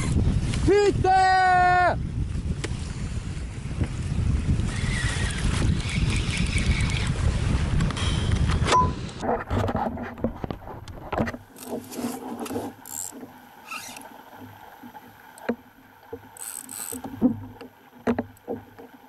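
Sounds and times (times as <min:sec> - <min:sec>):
water noise: 0:00.0 - 0:19.0
wind: 0:00.0 - 0:19.0
fishing reel clicks and knocks: 0:12.8 - 0:13.2, 0:16.4 - 0:17.1.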